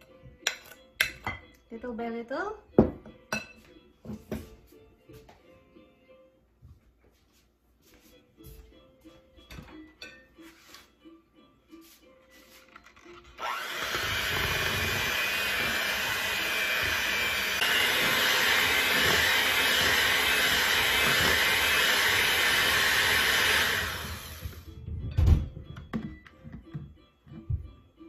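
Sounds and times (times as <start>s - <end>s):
electric hand mixer running: 13.4s - 24.7s.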